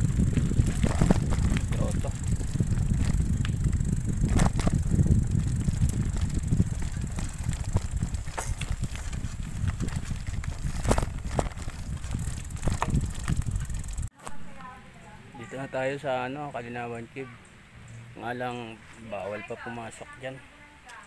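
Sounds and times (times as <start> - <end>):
rattles and knocks over stones: 0.0 - 14.0
bicycle tyres rumbling on gravel: 0.0 - 14.2.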